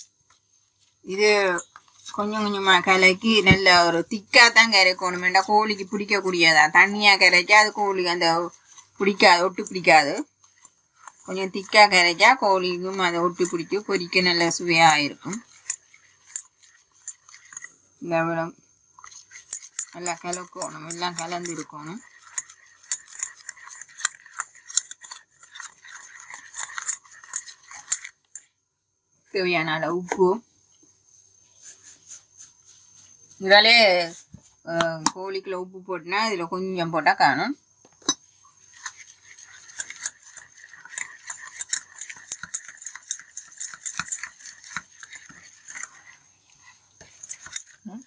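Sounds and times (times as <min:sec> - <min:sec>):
batter mixed by hand: 0:00.0 - 0:28.5, 0:29.3 - 0:37.1, 0:37.9 - 0:48.0
whisk clicking in metal bowl: 0:01.5 - 0:17.8, 0:19.0 - 0:28.4, 0:38.7 - 0:46.2, 0:47.0 - 0:48.0.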